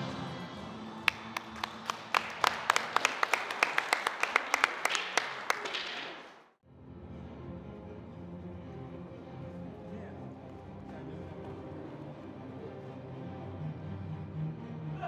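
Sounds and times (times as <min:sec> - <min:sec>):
audience applauding: 0:00.0 - 0:06.5, 0:10.4 - 0:13.2.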